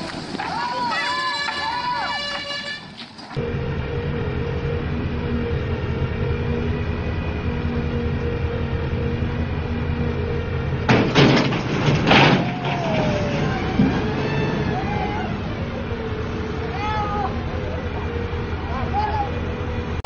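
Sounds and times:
truck engine running: 0.0s - 20.0s
crane boom crashing down: 10.8s - 15.6s.

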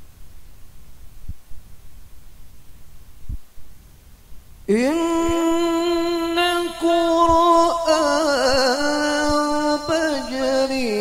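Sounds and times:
man reciting melodically over loudspeakers: 4.7s - 11.0s.

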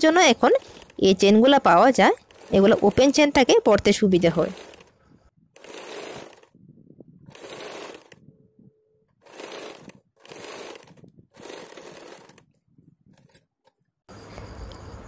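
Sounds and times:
sewing machine stitching: 0.0s - 5.0s, 5.6s - 6.5s, 7.3s - 8.2s, 9.2s - 12.5s.

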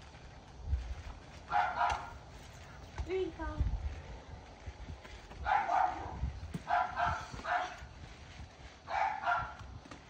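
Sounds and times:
feet bouncing on trampoline: 0.4s - 10.0s
dog barking: 1.5s - 2.1s, 5.4s - 6.1s, 6.7s - 7.8s, 8.9s - 9.6s.

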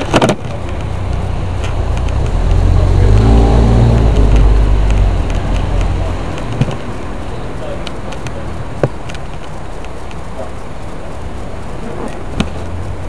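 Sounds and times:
vehicle engine rumbling: 0.0s - 13.0s
sharp knocks: 8.8s - 9.1s.

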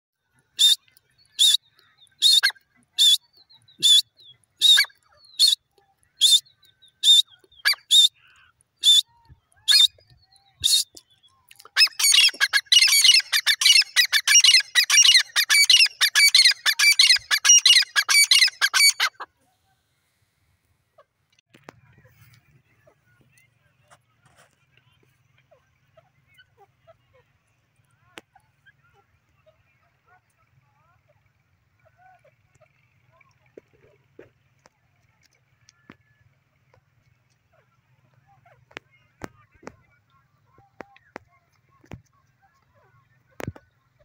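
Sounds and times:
francolin calling: 0.6s - 5.6s, 6.2s - 9.1s, 11.7s - 19.2s.

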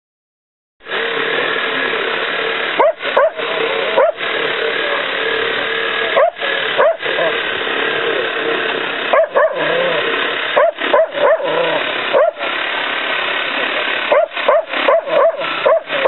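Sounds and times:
dog barking and yelping: 2.8s - 7.5s, 9.1s - 12.6s, 13.6s - 16.0s.

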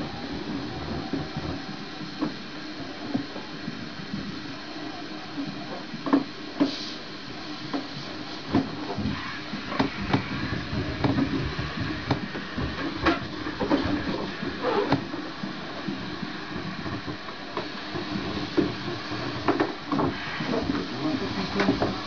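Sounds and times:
steady background noise: 0.0s - 22.0s
brief hiss: 6.6s - 7.1s.

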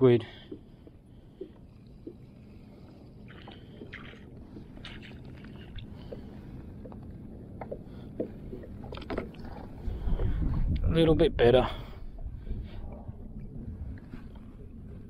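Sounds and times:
water lapping against kayak hull: 0.1s - 10.9s
light splashes: 0.3s - 9.8s.

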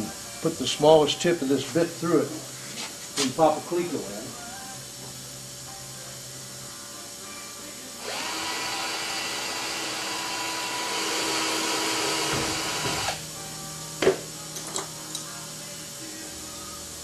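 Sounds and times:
power drill spinning: 8.0s - 13.2s.

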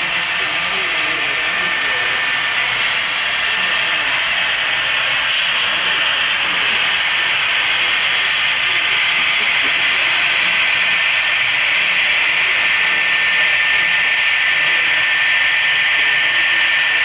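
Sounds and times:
model train rolling on track: 0.0s - 17.0s.

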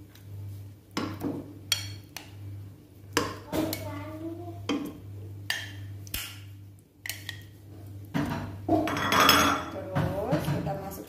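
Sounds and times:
steady low hum: 0.0s - 11.0s
tongs knocking against pan: 4.6s - 6.3s.

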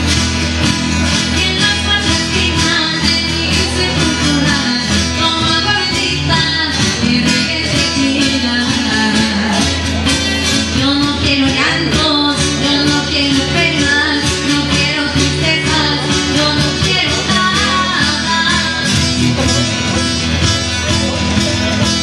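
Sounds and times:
acoustic guitars strummed: 0.0s - 22.0s
girl singing: 1.3s - 9.8s, 10.4s - 19.1s.

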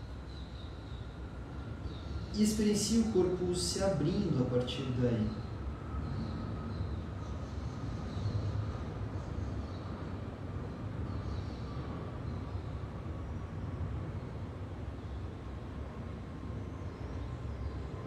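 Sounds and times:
low background rumble: 0.0s - 18.0s.

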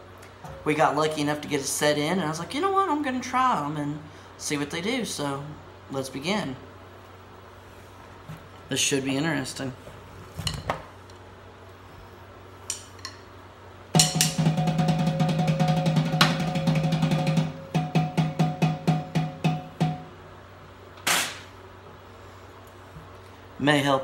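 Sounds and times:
snare drum roll and strokes: 14.0s - 20.1s.

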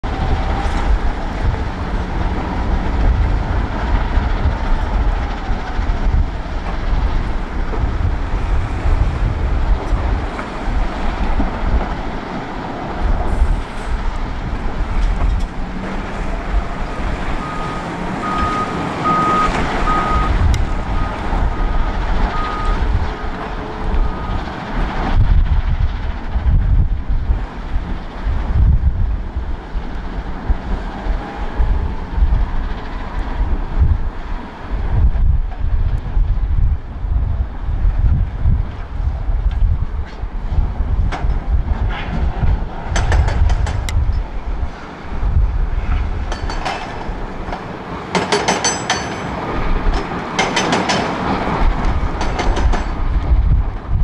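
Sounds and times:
rock crusher rumbling: 0.0s - 36.7s
wheel loader diesel engine: 0.0s - 54.0s
wind buffeting microphone: 0.0s - 54.0s
reversing alarm beeping: 17.4s - 22.9s, 24.0s - 24.5s.

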